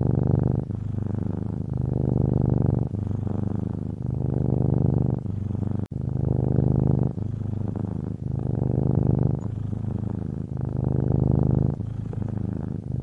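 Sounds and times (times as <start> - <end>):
cat purring: 0.0 - 13.0.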